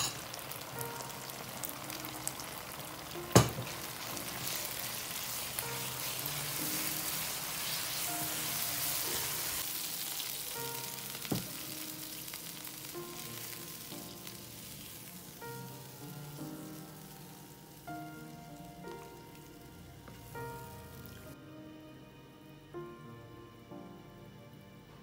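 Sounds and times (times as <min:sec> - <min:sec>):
sauce sizzling in a pan: 0:00.0 - 0:21.4
spatula stirring: 0:03.5 - 0:09.6.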